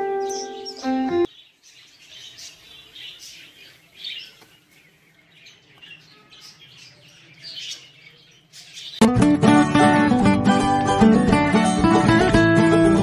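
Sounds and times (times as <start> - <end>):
budgerigars chirping: 0.0 - 9.0.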